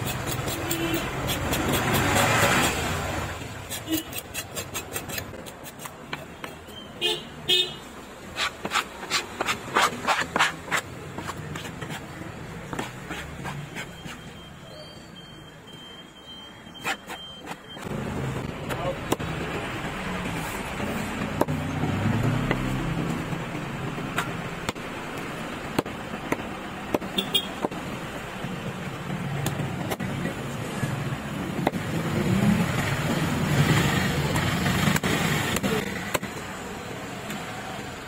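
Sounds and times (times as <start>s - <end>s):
knife cutting fish on wood block: 0.0s - 2.8s, 3.6s - 6.6s, 8.4s - 14.2s
vehicle engine rumble: 17.4s - 38.0s.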